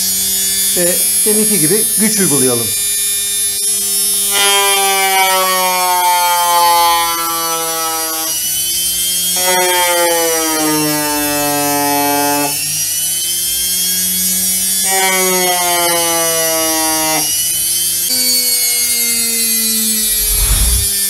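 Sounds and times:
electric motor running: 20.1 - 20.9.

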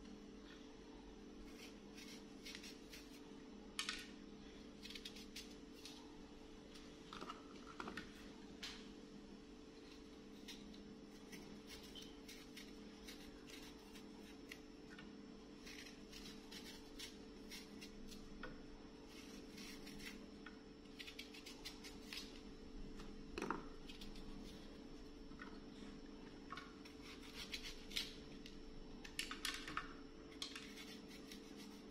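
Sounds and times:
knife cutting apple: 1.4 - 4.1, 4.8 - 6.1, 9.8 - 14.6, 15.6 - 18.5, 19.1 - 24.7, 26.8 - 28.5, 30.3 - 31.9.

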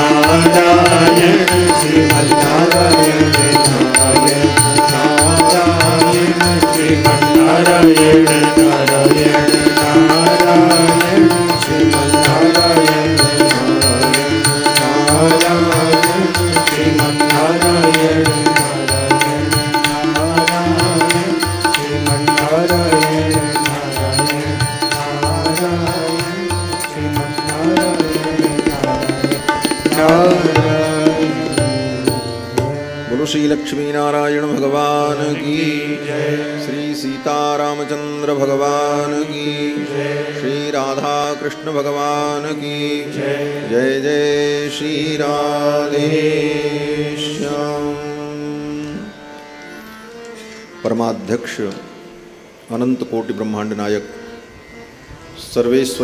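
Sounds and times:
devotional melody: 0.0 - 56.0
hand drum beat: 0.2 - 32.3.

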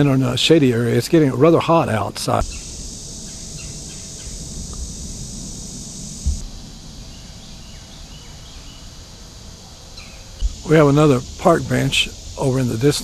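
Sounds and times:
high-pitched insect drone: 2.2 - 13.0
brief low bump: 6.2 - 6.5.

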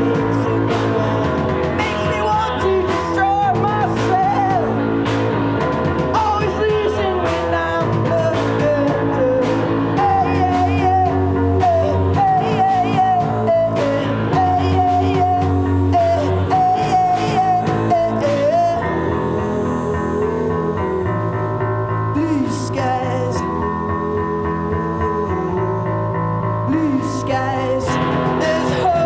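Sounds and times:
person singing: 0.0 - 5.2, 6.0 - 29.0
steady drum beat: 0.0 - 19.6
live rock band: 0.0 - 29.0.

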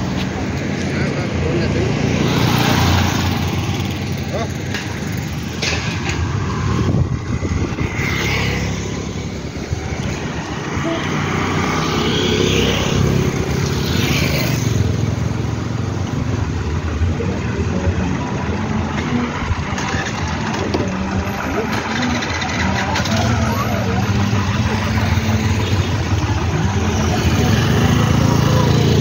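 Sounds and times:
motorcycles and cars passing: 0.0 - 29.0
low engine rumble: 14.8 - 29.0.

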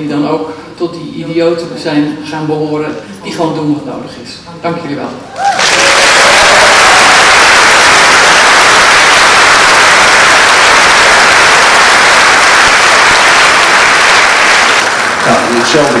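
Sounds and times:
large audience applauding: 5.4 - 16.0.

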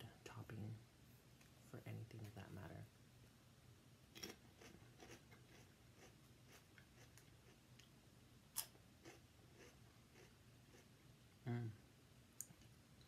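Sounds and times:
potato chips being chewed: 4.2 - 7.6.

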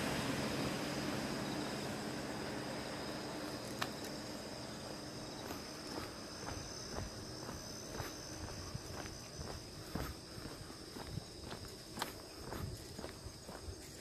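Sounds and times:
aircraft rumble: 0.0 - 14.0
high-pitched insect chorus: 0.0 - 14.0
footsteps on a path: 3.5 - 14.0.

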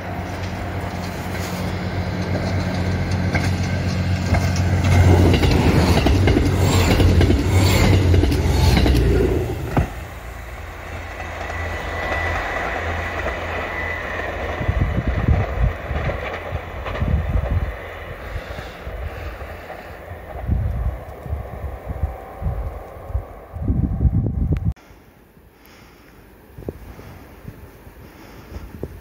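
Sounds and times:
train wheels clattering over rail joints: 0.0 - 20.7
diesel train engines droning: 0.0 - 29.0
wind buffeting microphone: 1.7 - 24.8, 26.5 - 29.0.

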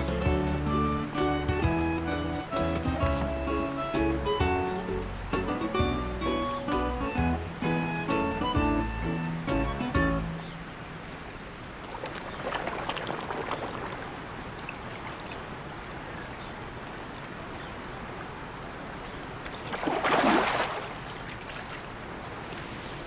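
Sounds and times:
rush of water: 0.0 - 23.0
water trickling: 10.1 - 23.0.

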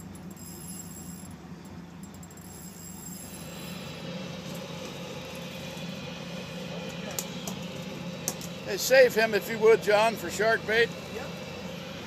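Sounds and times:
boat engines idling: 0.0 - 12.0
broad hiss: 3.3 - 12.0.

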